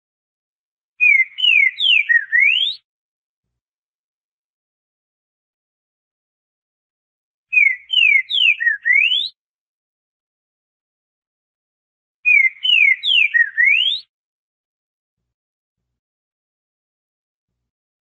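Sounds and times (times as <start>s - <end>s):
bird singing whistled notes: 1.0s - 2.8s, 7.5s - 9.4s, 12.2s - 14.1s.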